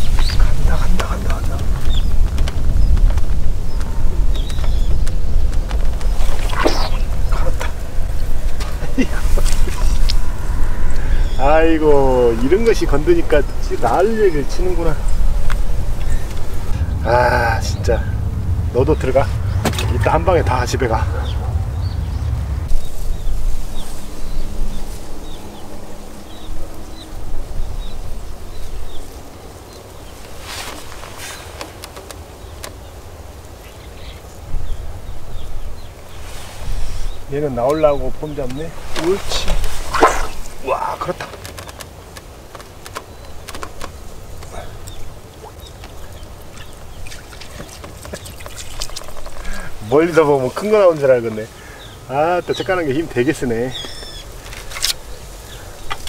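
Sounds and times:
small bird chirping: 0.0 - 7.8, 42.7 - 49.9, 51.7 - 56.0
rustle: 0.0 - 20.5, 21.1 - 56.0
wind buffeting microphone: 0.0 - 56.0
fish thrashing in water: 6.1 - 7.3, 39.0 - 40.6, 44.6 - 49.6.

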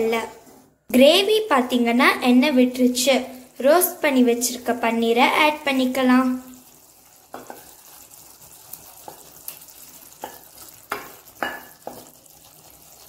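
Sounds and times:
gravy sizzling in a pan: 2.9 - 13.0.

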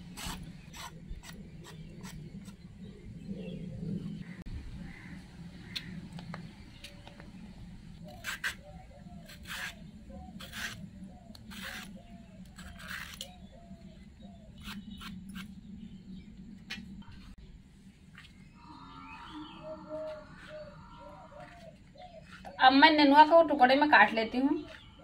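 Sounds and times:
knife scraping gourd skin: 8.1 - 8.6, 9.2 - 13.3.

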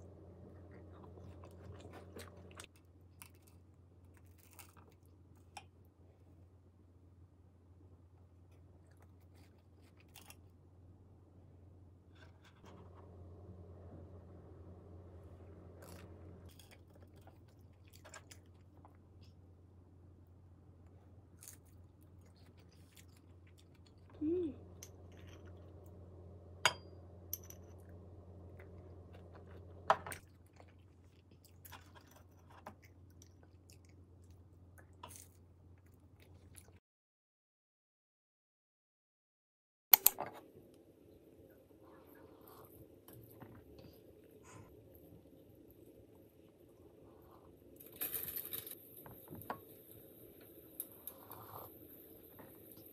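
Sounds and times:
low steady hum: 0.0 - 36.8.

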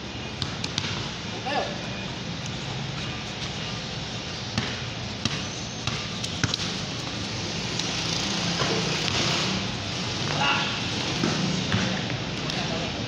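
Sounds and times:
ball bouncing on concrete: 0.4 - 1.1, 4.5 - 9.4, 11.2 - 12.6.

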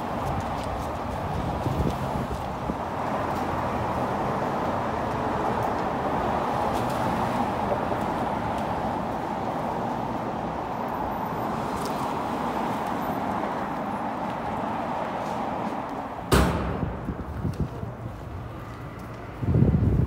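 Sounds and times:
city street traffic: 0.0 - 20.0
sharp loud thump: 16.3 - 17.4.

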